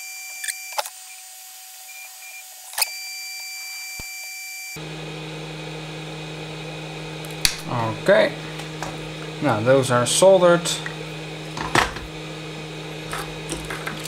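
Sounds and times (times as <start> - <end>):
high electrical whine and hiss: 0.0 - 14.0
steady low hum: 4.8 - 14.0.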